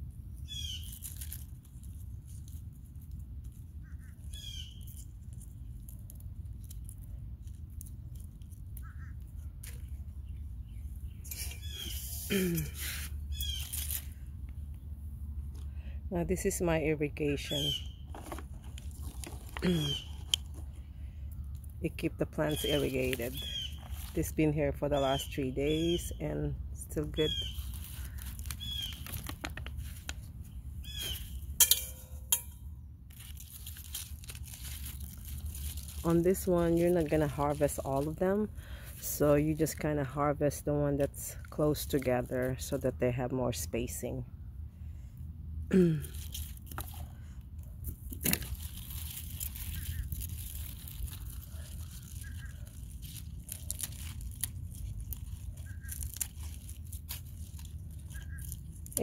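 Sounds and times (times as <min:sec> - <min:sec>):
steady low rumble: 0:00.0 - 0:59.0
rustling handling noise: 0:00.3 - 0:16.5, 0:17.2 - 0:26.1, 0:26.9 - 0:39.9, 0:46.1 - 0:59.0
stems snapping: 0:00.7 - 0:03.5, 0:13.3 - 0:14.8, 0:27.2 - 0:30.2, 0:33.1 - 0:38.2, 0:46.1 - 0:47.0, 0:47.8 - 0:59.0.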